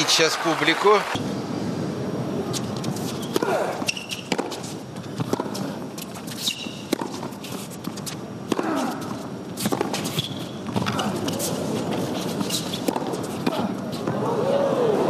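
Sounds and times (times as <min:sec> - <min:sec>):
shoe squeaks on court: 0:02.5 - 0:04.7, 0:06.0 - 0:08.2, 0:09.6 - 0:10.6, 0:11.3 - 0:13.2
tennis racket strokes: 0:02.5 - 0:14.1
tennis ball bouncing: 0:02.6 - 0:14.2.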